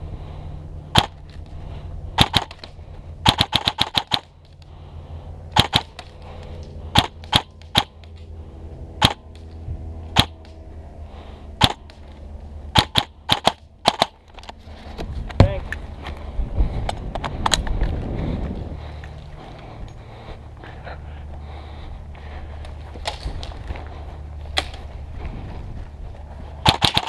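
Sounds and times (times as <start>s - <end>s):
airsoft rifle shots snapping: 0.9s - 1.2s, 2.2s - 4.3s, 5.5s - 6.1s, 6.9s - 8.1s, 9.0s - 9.5s, 10.1s - 10.6s, 11.6s - 12.0s, 12.7s - 14.2s, 26.6s - 27.0s.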